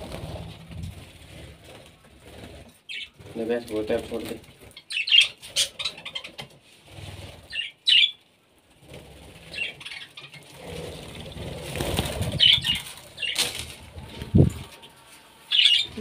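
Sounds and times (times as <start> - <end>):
birds flapping wings: 0.0 - 4.8, 10.4 - 14.8
high bird chirps: 14.8 - 16.0.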